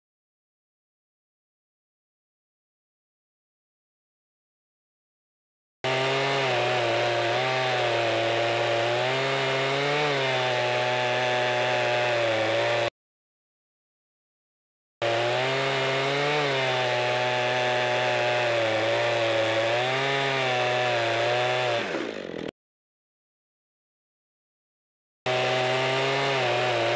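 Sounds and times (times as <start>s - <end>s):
chainsaw cutting log: 5.8s - 12.9s, 15.0s - 22.5s, 25.3s - 26.9s.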